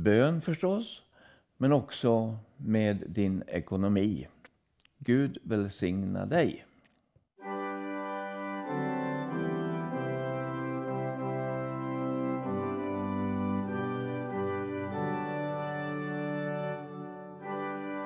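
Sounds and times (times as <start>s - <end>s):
organ playing slow chords: 7.4s - 18.0s.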